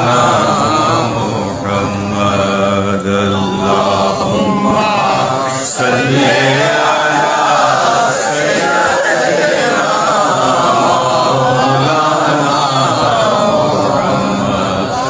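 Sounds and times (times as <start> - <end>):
men chanting together: 0.0 - 15.0.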